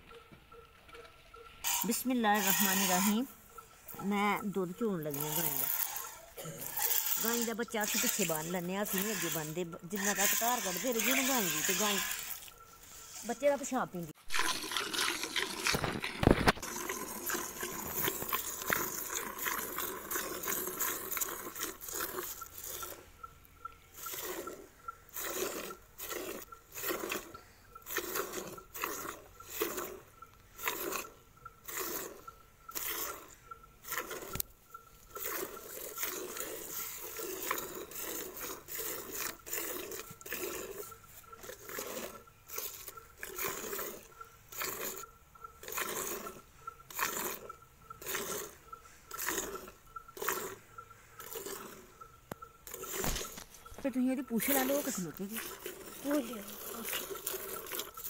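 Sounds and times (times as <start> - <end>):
milk squirting into a metal pail: 1.6 - 3.3, 3.9 - 13.7, 14.3 - 22.9, 35.0 - 47.4, 49.1 - 50.6, 51.2 - 51.8, 52.6 - 58.0.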